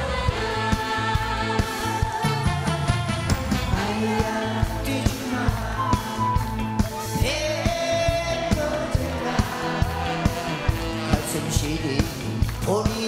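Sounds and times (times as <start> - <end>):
band with drums and guitar: 0.0 - 13.0
man singing into a microphone: 7.2 - 9.1, 10.8 - 13.0.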